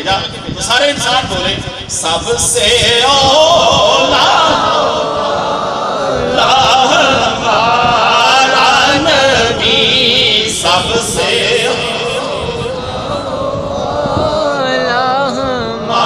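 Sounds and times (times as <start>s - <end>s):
man singing into a microphone: 0.0s - 16.0s.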